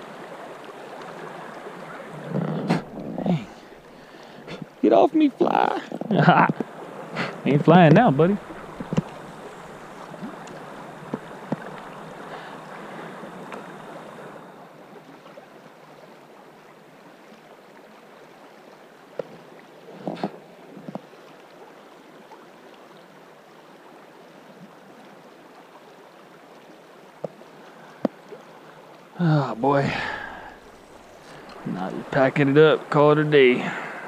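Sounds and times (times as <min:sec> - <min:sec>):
fast-flowing river rushing: 0:00.0 - 0:15.1, 0:27.6 - 0:34.0.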